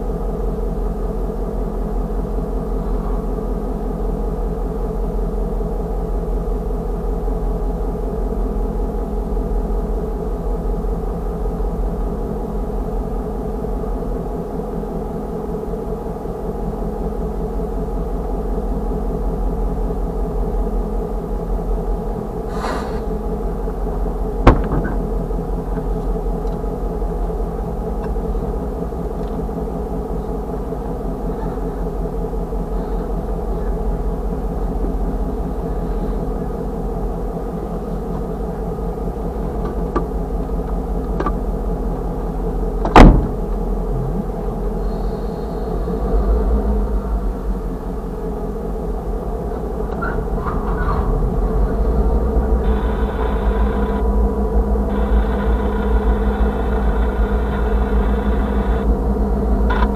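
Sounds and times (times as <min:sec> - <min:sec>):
engine idling: 0:00.0 - 0:59.9
brief hiss: 0:22.5 - 0:23.1.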